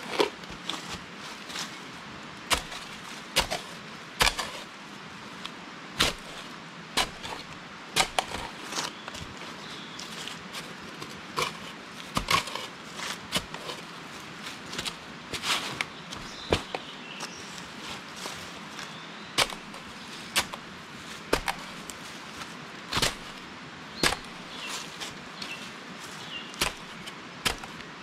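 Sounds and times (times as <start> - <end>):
digging tool striking soil: 2.5 - 4.7, 6.0 - 6.4, 7.0 - 9.3, 11.3 - 13.8, 14.8 - 16.9, 18.8 - 27.9.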